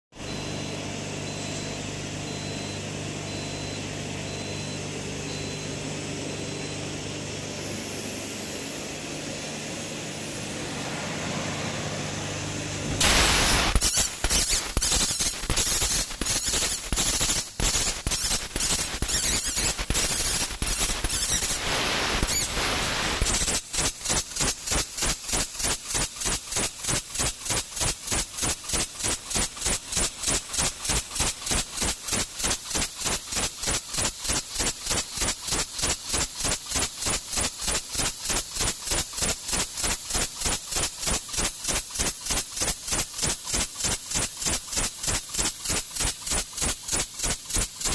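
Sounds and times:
laser cutter hissing and cracking: 13.0s - 47.9s
pulsing hiss: 13.0s - 47.9s.

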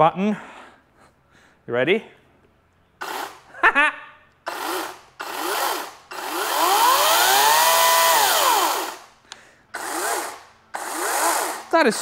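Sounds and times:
electric chainsaw whining: 3.0s - 3.5s, 4.5s - 9.1s, 9.8s - 11.8s.

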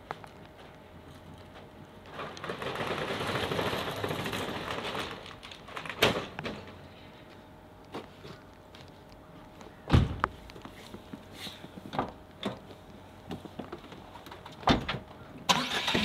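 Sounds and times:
metal roller shutter rattling: 2.1s - 6.7s.

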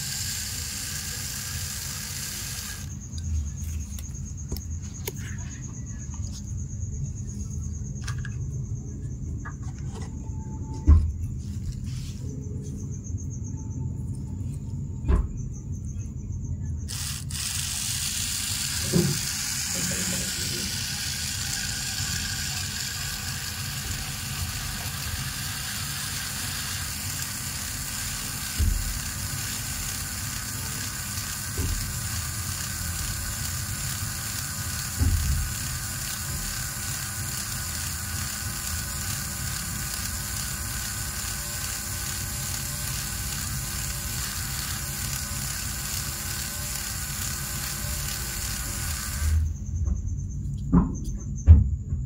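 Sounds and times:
wheel spinning in sand: 0.0s - 3.1s, 16.9s - 49.5s
small electric motor running: 0.0s - 5.2s, 16.9s - 49.6s.

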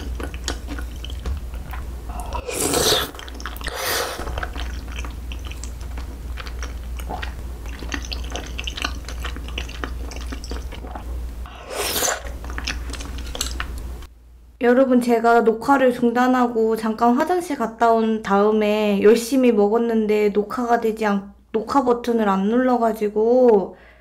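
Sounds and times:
wet chewing clicks and smacks: 0.0s - 1.8s, 3.1s - 11.1s, 12.2s - 13.9s
noodles being slurped: 0.0s - 13.8s.

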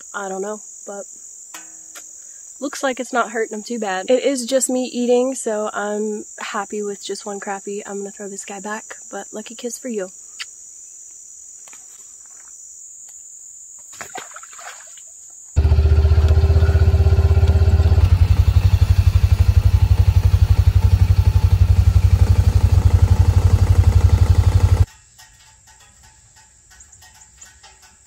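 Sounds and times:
insects buzzing: 0.0s - 28.0s
utility vehicle engine running: 15.6s - 24.9s.

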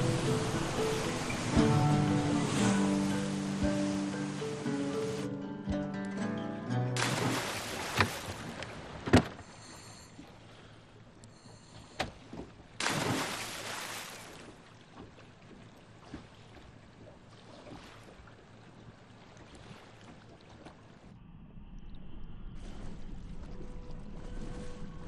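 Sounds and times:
muffled underwater rumble: 0.0s - 4.5s, 20.2s - 25.0s
loud splash: 0.0s - 5.2s, 7.0s - 9.0s, 12.8s - 14.5s
water sloshing and splashing: 0.0s - 5.4s, 7.0s - 21.2s, 22.6s - 25.0s.

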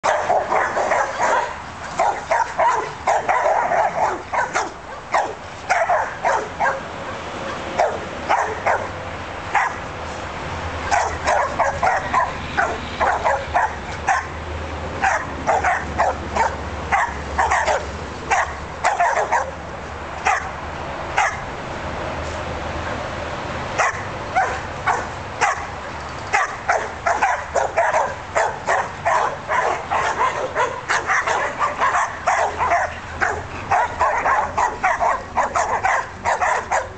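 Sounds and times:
dogs barking: 0.0s - 10.0s, 10.8s - 14.4s, 15.0s - 19.6s, 20.2s - 21.5s, 23.7s - 36.9s.

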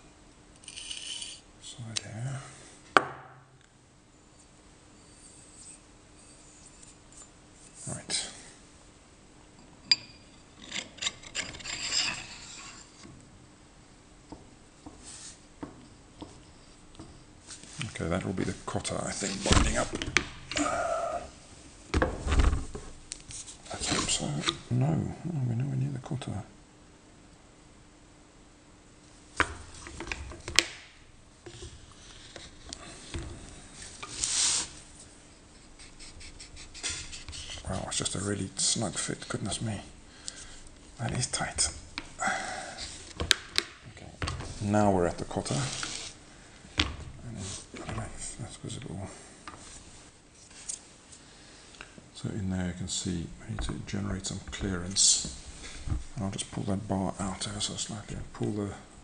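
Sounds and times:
metal scraping against metal: 0.6s - 1.4s, 10.2s - 13.0s
short metal scrape: 0.6s - 1.4s.

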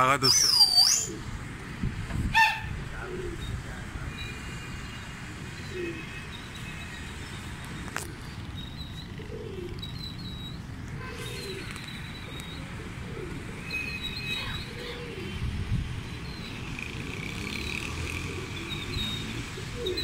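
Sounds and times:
distant city noise: 0.0s - 20.0s
bird chirps and calls: 0.2s - 1.2s, 3.2s - 20.0s
wind rumble: 1.2s - 4.1s, 15.3s - 16.3s.

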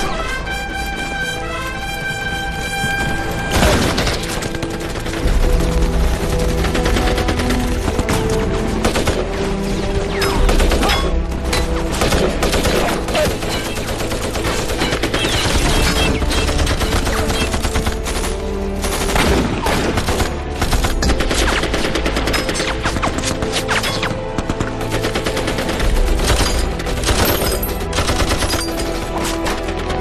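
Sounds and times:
orchestral film score: 0.0s - 30.0s
rifle and machine-gun fire: 1.2s - 11.0s, 11.9s - 23.5s.

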